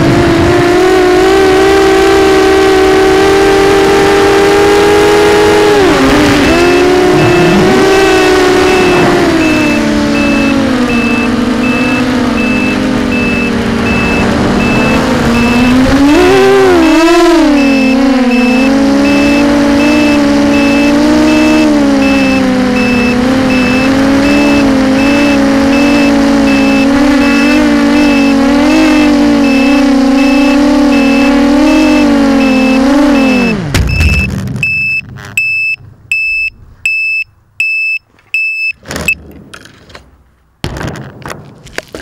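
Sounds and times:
high beeping: 0:04.3 - 0:39.2
quadcopter motors running: 0:04.9 - 0:33.6.

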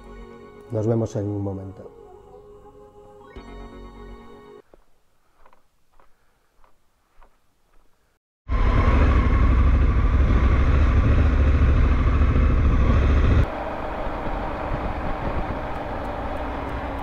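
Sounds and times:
motorcycle engine and road noise: 0:08.5 - 0:17.0.

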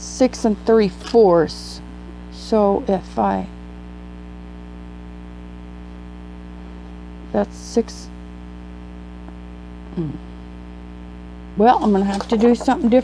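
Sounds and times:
electrical mains hum: 0:00.0 - 0:13.0
soft vocal sounds: 0:09.8 - 0:10.8.

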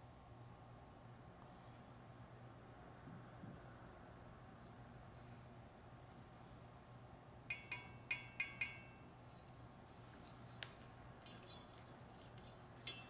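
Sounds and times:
metallic knife clinks: 0:07.5 - 0:09.1, 0:12.8 - 0:13.0.

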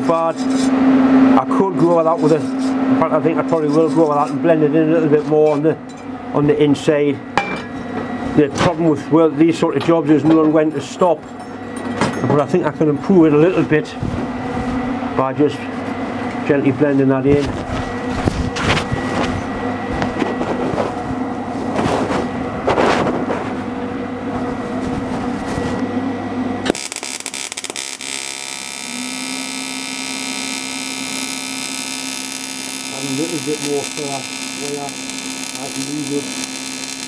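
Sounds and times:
welding arc buzzing: 0:17.3 - 0:22.6, 0:26.6 - 0:37.0
clatter and handling noise: 0:17.3 - 0:23.7.

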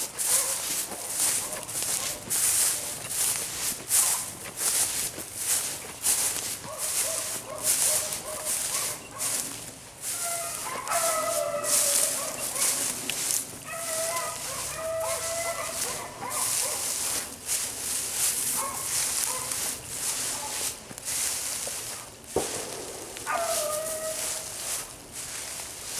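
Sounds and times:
dogs baying: 0:00.0 - 0:03.0, 0:03.9 - 0:04.5, 0:06.5 - 0:17.2, 0:18.5 - 0:19.7, 0:23.2 - 0:24.6
brush crackling and rustling: 0:00.0 - 0:25.9.

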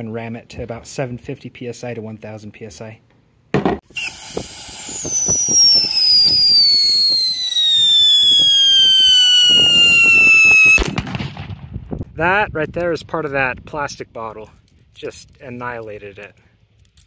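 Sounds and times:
firework whistle falling in pitch: 0:03.9 - 0:11.0
firework crackle: 0:03.9 - 0:11.8.

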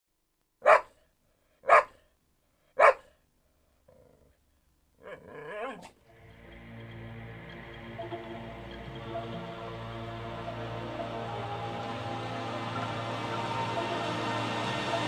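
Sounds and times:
dog barking: 0:00.6 - 0:02.1, 0:02.8 - 0:03.2
quiet wavering sound: 0:06.1 - 0:15.0.

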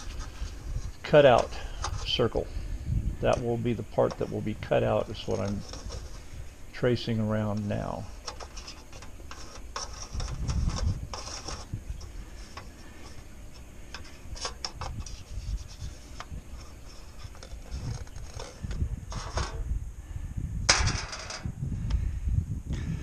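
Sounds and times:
metal plate clicks and rubs: 0:00.0 - 0:02.4, 0:03.3 - 0:06.3, 0:07.5 - 0:19.6
marker scratching on metal: 0:04.0 - 0:06.3, 0:08.1 - 0:19.6.

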